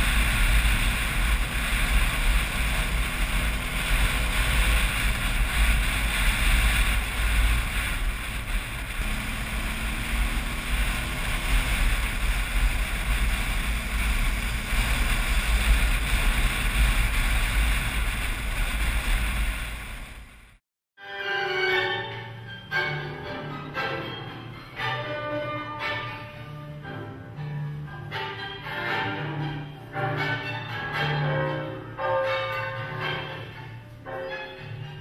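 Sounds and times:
motorcycle engine: 0.0s - 20.6s
road noise: 0.0s - 20.6s, 21.4s - 35.0s
wind buffeting microphone: 0.0s - 20.6s.

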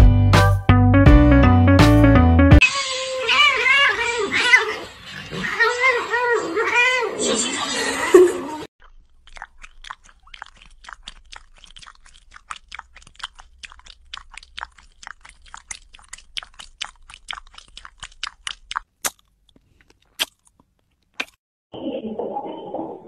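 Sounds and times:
cat mouth crunchy clicks: 8.8s - 21.4s.

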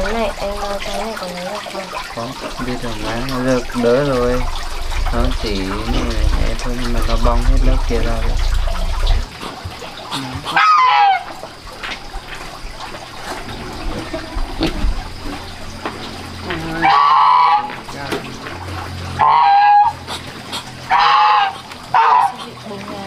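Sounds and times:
fowl calling: 9.5s - 11.5s, 16.4s - 17.9s, 19.1s - 22.7s.

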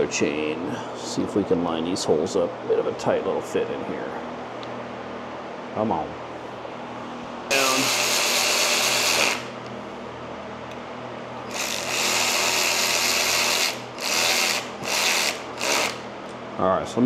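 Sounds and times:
electric ratchet buzzing: 7.5s - 9.7s, 11.4s - 16.1s.

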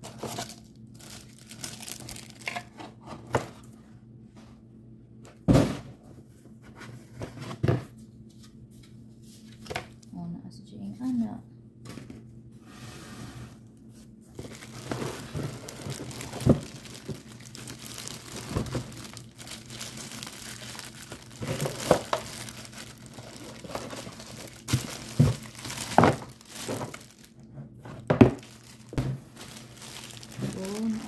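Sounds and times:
plastic wrapping crinkling: 0.0s - 2.7s, 14.3s - 31.0s
cardboard box rustling: 14.3s - 27.3s.

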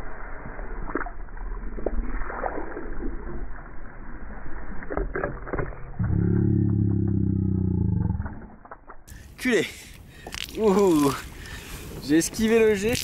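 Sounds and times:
loud low-pitched drone: 5.9s - 8.6s.

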